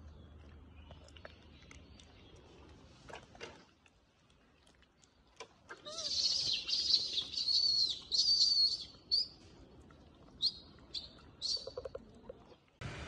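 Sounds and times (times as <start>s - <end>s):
high-pitched animal chirping calls: 5.8s - 9.3s, 10.4s - 11.9s.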